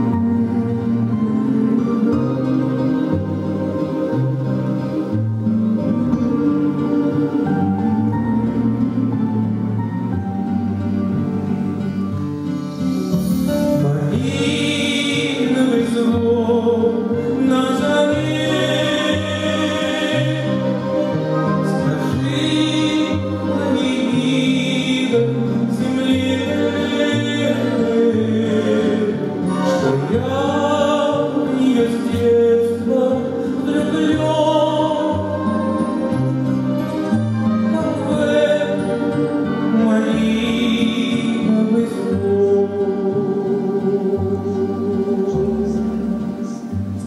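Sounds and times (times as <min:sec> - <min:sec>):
grand piano accompaniment: 0:00.0 - 0:47.0
man singing long held notes: 0:13.3 - 0:36.2, 0:37.0 - 0:47.0.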